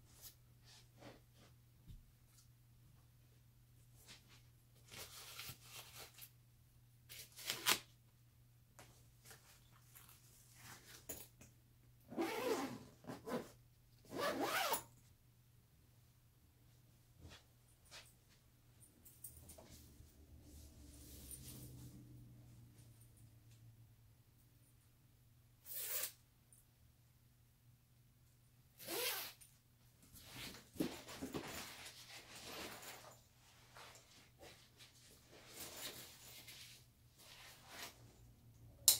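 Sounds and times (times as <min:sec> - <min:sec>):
backpack zipper being pulled: 0:12.1 - 0:13.5, 0:14.1 - 0:14.8, 0:25.7 - 0:26.2, 0:28.8 - 0:29.4.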